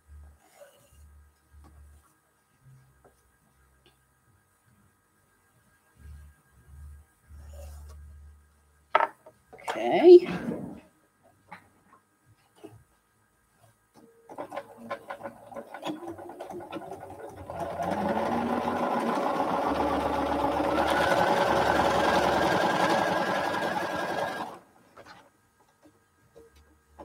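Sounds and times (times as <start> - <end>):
sewing machine stitching: 14.3 - 25.2.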